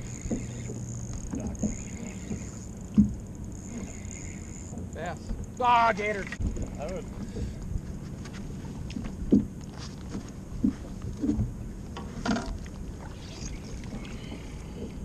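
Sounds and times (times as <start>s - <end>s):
steady low hum: 0.0s - 15.0s
water: 0.0s - 15.0s
wind: 0.0s - 15.0s.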